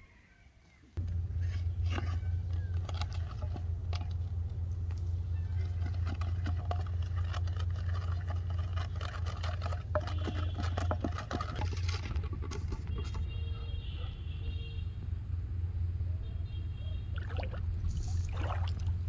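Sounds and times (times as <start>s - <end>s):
low hum: 1.0s - 13.5s.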